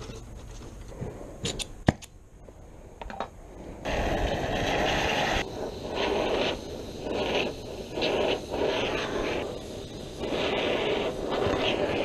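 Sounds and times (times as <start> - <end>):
torch flame hissing: 3.5 - 12.0.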